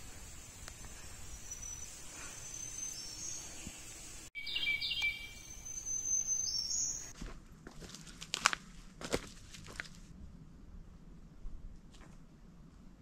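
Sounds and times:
songbirds singing: 0.3s - 7.1s.

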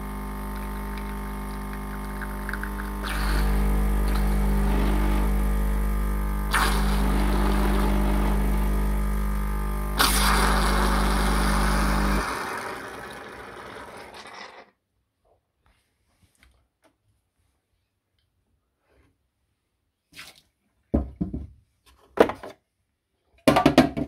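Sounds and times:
coffee machine pump buzzing: 0.0s - 14.6s
hissing spluttering spurts: 6.5s - 7.5s, 10.0s - 10.7s.

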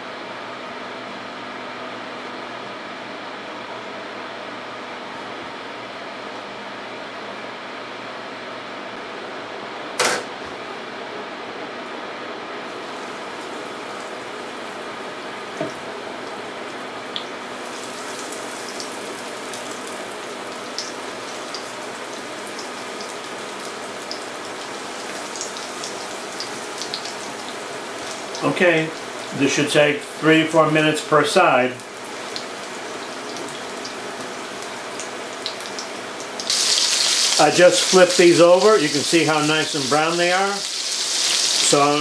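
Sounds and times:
cutlets sizzling in oil: 12.7s - 29.4s, 31.8s - 42.0s.

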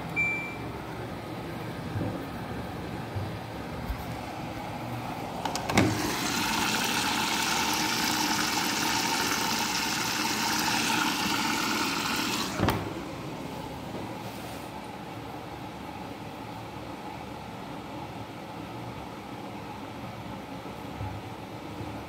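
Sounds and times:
washing machine filling with water: 4.2s - 13.9s.

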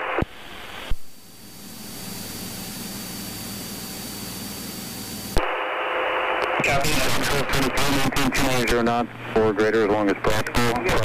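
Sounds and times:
light aircraft engine drone: 1.1s - 5.4s.

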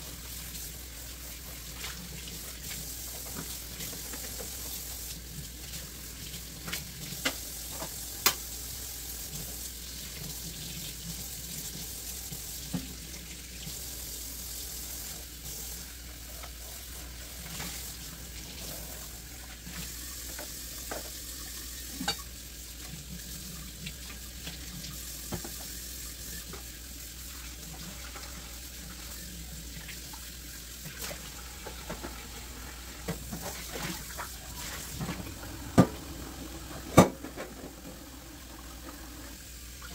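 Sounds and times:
faucet running into steel sink: 0.0s - 39.9s.

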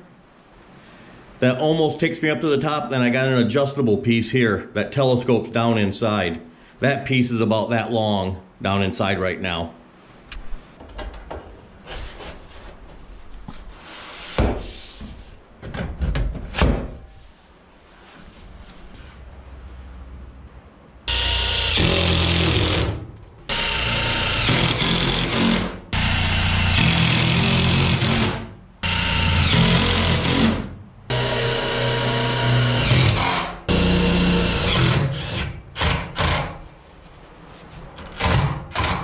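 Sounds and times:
cordless drill driving screws: 21.1s - 36.4s.

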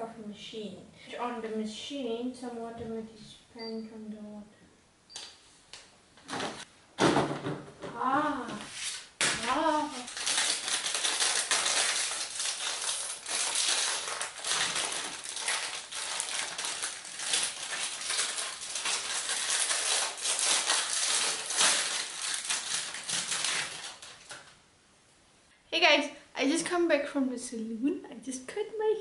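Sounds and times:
plastic packaging crinkling: 9.4s - 24.6s
tape peeling: 9.9s - 24.5s.

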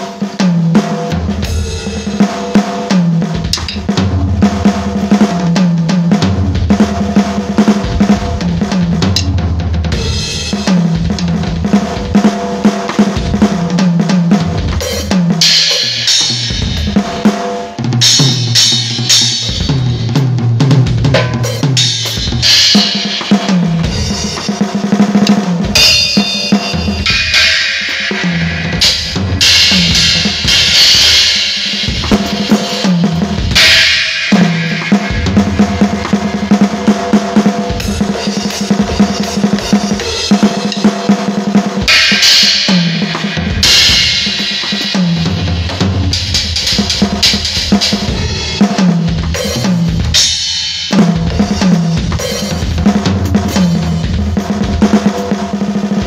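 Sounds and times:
drum kit solo: 0.0s - 56.0s
cymbal crashes: 25.7s - 36.4s.

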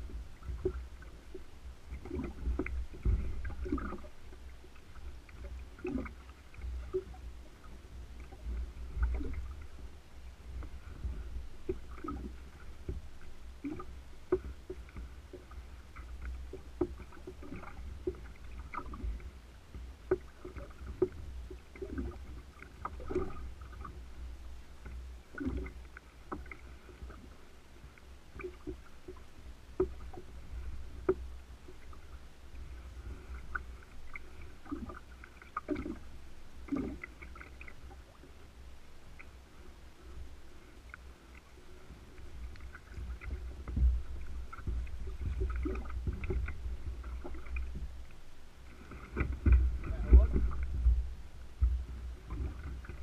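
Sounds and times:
steady low rumble: 0.0s - 53.0s
waves lapping against kayak hull: 0.0s - 53.0s.

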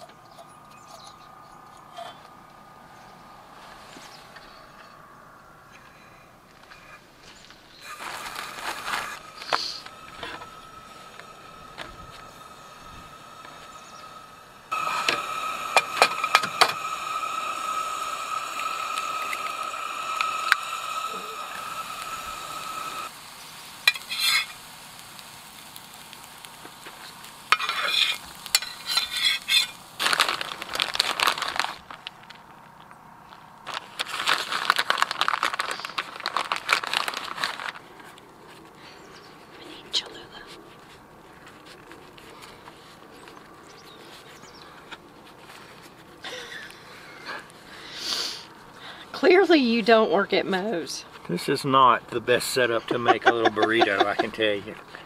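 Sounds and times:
faint high chirps: 0.0s - 8.0s
eggs sizzling in frying pan: 7.7s - 32.0s, 46.3s - 51.7s, 52.3s - 55.0s
metal spatula scraping pan: 23.9s - 24.6s, 27.5s - 29.8s.

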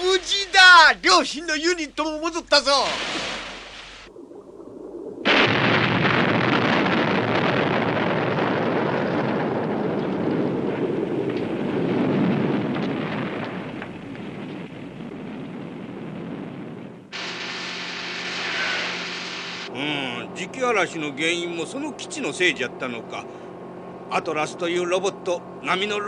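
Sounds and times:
rumbling explosion: 0.0s - 1.2s, 2.9s - 19.8s.

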